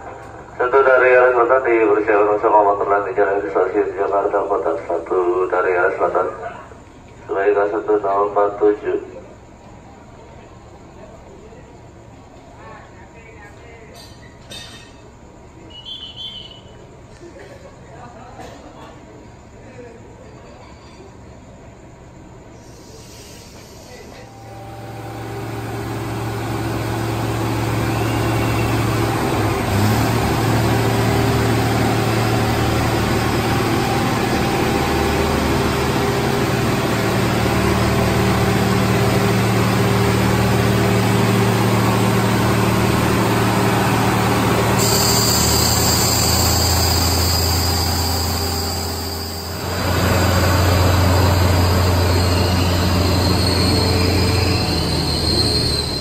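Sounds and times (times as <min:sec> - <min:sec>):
train engine hum: 0:00.0 - 0:56.0
high wheel squeal: 0:22.6 - 0:35.2, 0:37.1 - 0:56.0
train wheels rolling: 0:22.6 - 0:56.0.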